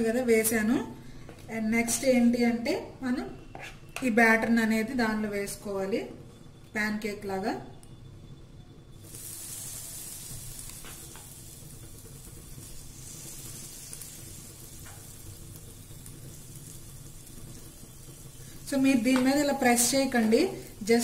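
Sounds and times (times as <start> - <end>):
batter sizzling in hot fat: 8.9 - 21.0.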